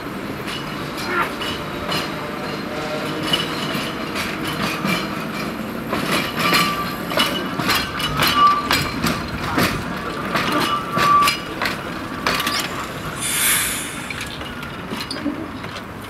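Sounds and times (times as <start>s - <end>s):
tram wheels clacking over rail joints: 0.0s - 16.0s
wheel squeals: 6.4s - 9.6s, 10.4s - 15.4s.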